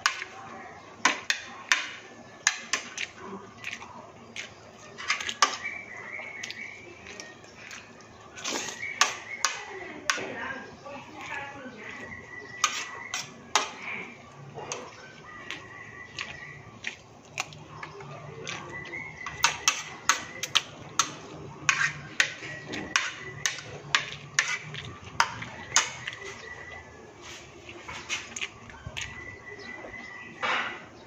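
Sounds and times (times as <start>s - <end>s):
spoon clinking on a plate: 19.2s - 26.2s.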